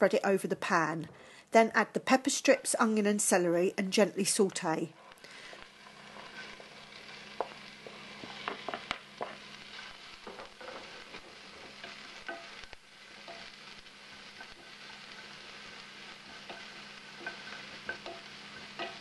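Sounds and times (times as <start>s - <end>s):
vegetables sizzling in oil: 1.8s - 19.0s
wooden spatula scraping and knocking pan: 5.8s - 19.0s.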